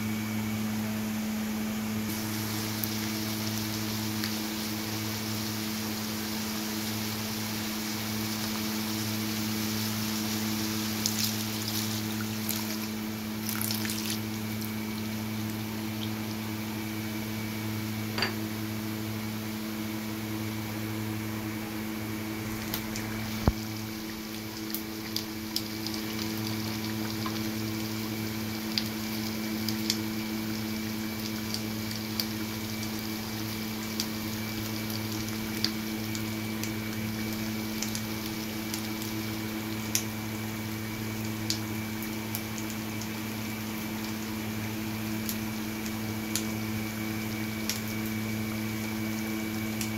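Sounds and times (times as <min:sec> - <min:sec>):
steady low hum: 0:00.0 - 0:49.9
sauce bubbling: 0:02.1 - 0:18.0, 0:22.2 - 0:49.9
crackling and popping in wok: 0:22.5 - 0:49.9.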